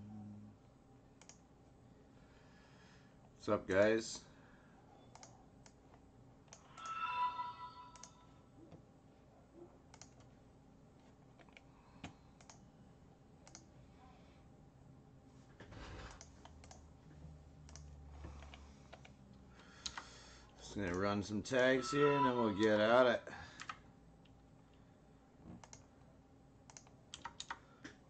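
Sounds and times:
keyboard and mouse clicks: 1.2s - 1.4s, 5.1s - 7.0s, 9.9s - 10.3s, 11.3s - 12.6s, 13.4s - 13.7s, 16.0s - 16.9s, 17.6s - 19.2s, 19.8s - 20.1s, 25.5s - 25.9s, 26.7s - 28.0s
short pitched tone: 6.7s - 8.3s.

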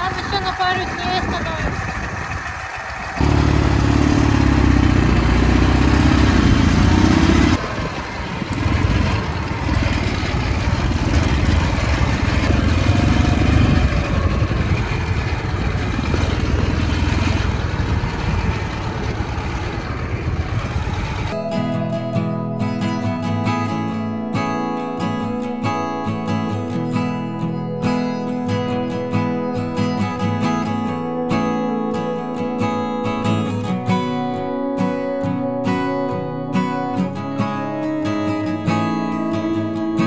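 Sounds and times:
motorcycle engine running: 0.0s - 24.0s.

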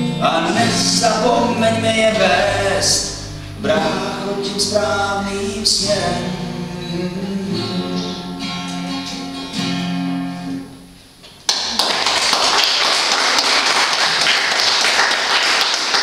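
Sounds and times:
acoustic guitar chords: 0.0s - 11.2s
audience applause: 11.5s - 16.0s.

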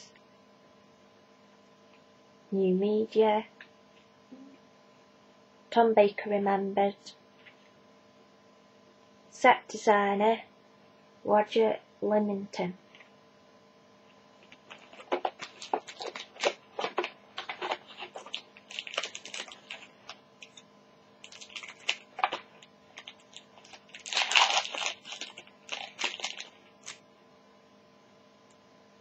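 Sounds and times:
foil wrapper crinkling and tearing: 14.4s - 27.0s.

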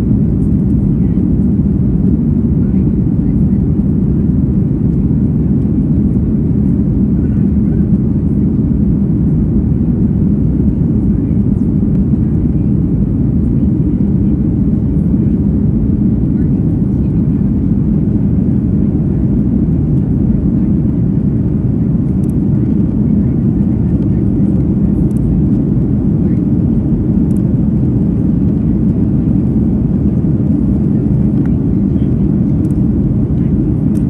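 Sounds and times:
airplane cabin roar: 0.0s - 34.0s.

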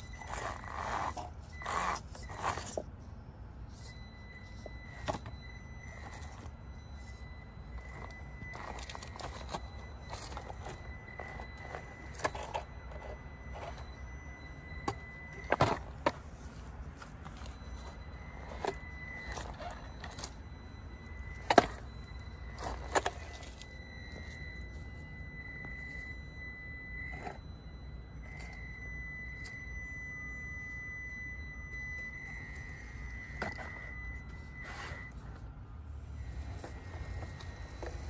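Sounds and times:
electric motor whine: 0.0s - 2.8s.

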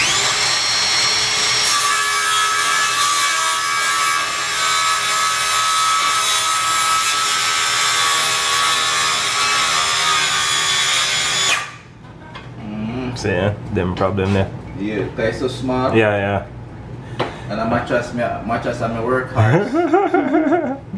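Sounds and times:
circular saw cutting board: 0.0s - 11.8s.

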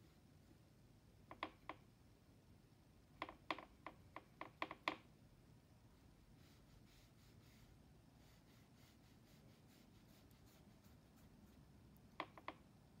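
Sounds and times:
paintbrush tapping paint tin: 12.1s - 12.7s.

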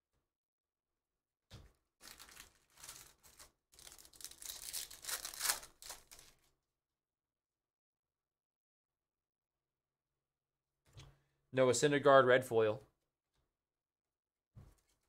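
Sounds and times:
foil wrapper tearing and crinkling: 2.0s - 6.5s.

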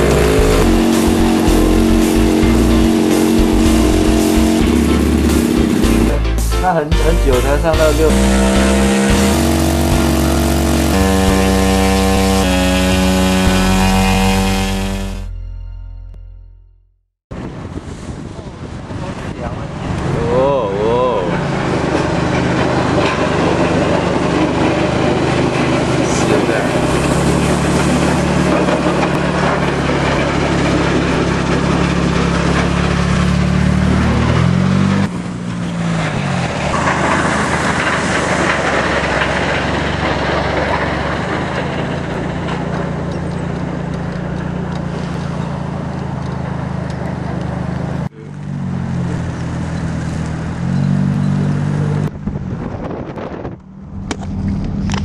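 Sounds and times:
road and wind noise: 0.0s - 6.2s, 17.3s - 55.0s
car engine running: 0.0s - 15.4s, 20.2s - 55.0s.

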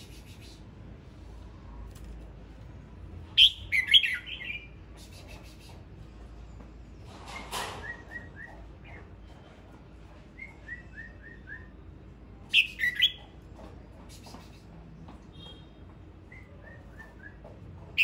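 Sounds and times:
bird singing warbled phrases: 3.4s - 5.8s, 12.5s - 13.3s.

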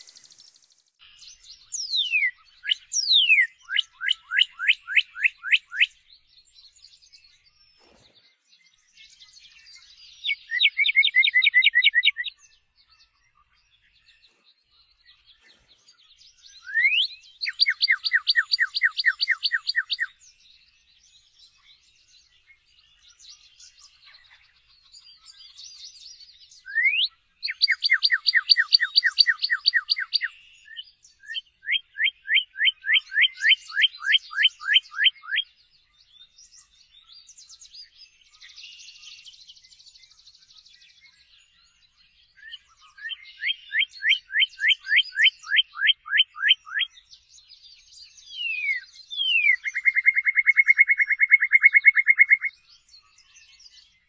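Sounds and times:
cardinal whistling song: 0.0s - 6.0s, 9.5s - 12.4s, 16.5s - 20.2s, 26.5s - 35.6s, 42.3s - 47.1s, 48.0s - 52.6s
faint bird chirps: 0.0s - 54.0s.

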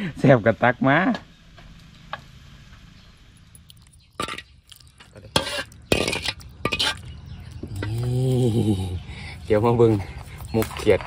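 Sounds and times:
metal ladle clinking on pot and bowl: 3.6s - 7.6s.

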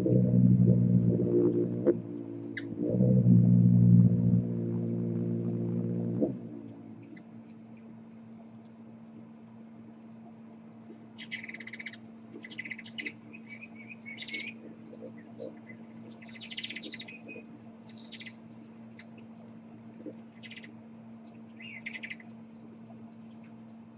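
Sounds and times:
faint low hum: 0.0s - 23.9s
hummingbird twittering: 21.6s - 22.2s.

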